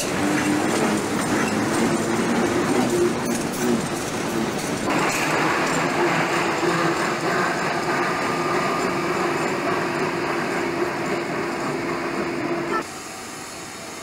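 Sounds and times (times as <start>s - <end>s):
locomotive running noise: 0.0s - 14.0s.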